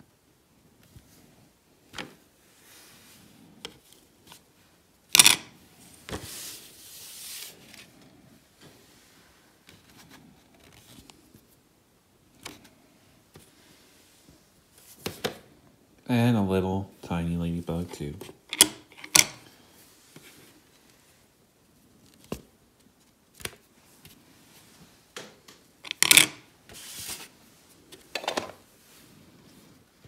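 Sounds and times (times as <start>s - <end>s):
paper rustling: 26.7s - 28.1s.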